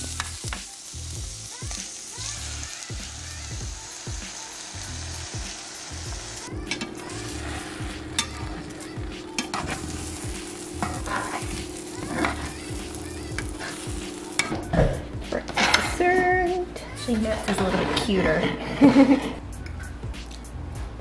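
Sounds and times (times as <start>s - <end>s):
eggs sizzling in a frying pan: 0.0s - 19.1s
metal spatula scraping a pan: 6.6s - 14.7s, 15.4s - 16.1s, 17.0s - 18.8s.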